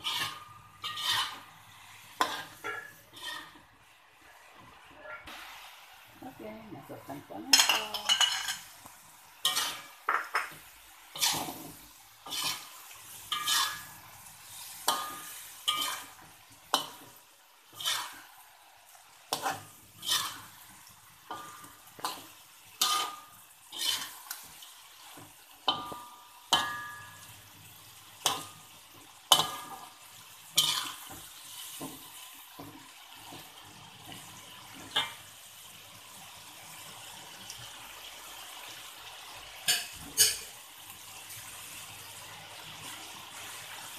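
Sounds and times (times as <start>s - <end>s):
metal spatula scraping a wok: 0.0s - 3.9s, 7.4s - 8.8s, 9.4s - 18.6s, 19.2s - 27.3s, 28.2s - 35.2s
pan sizzling: 0.0s - 43.9s.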